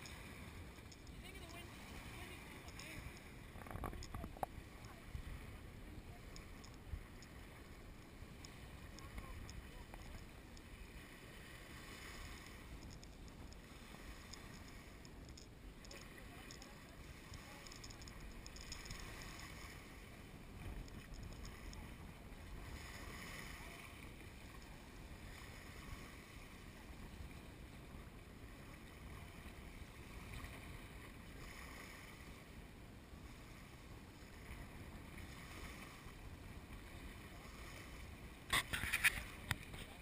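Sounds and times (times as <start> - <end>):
small waves lapping on shore: 0.0 - 40.0
wind noise on microphone: 38.2 - 40.0.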